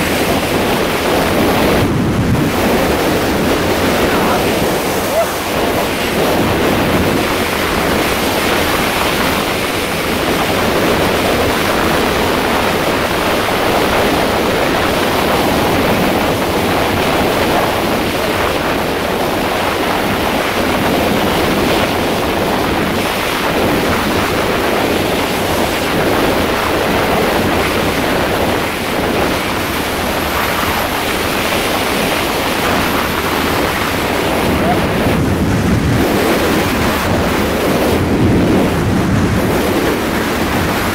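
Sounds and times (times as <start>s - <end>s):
wind rush on microphone: 0.0s - 40.9s.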